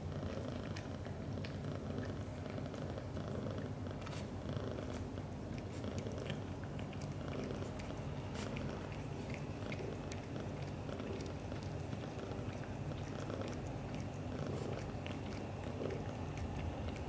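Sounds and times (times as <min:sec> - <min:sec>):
cats purring: 0:00.0 - 0:17.0
tongue licking clicks: 0:05.6 - 0:12.9.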